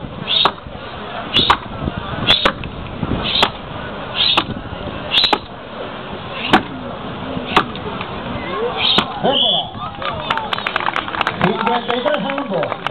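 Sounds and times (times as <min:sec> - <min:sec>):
axe chopping into log: 0:06.5 - 0:06.7, 0:07.5 - 0:07.8.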